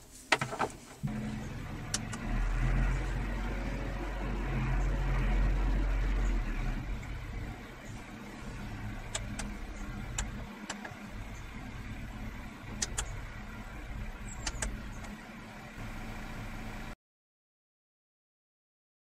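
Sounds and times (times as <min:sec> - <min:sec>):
tractor engine drone: 0:01.0 - 0:17.0
sharp clicks: 0:08.6 - 0:11.4, 0:12.7 - 0:13.3, 0:14.3 - 0:15.2.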